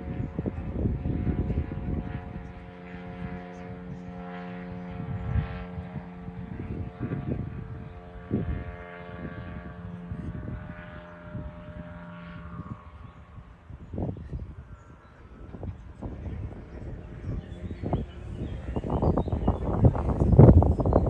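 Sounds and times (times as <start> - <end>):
wind thumping on microphone: 0.0 - 3.4, 4.8 - 12.8, 13.8 - 21.0
model aircraft engine droning: 0.0 - 21.0.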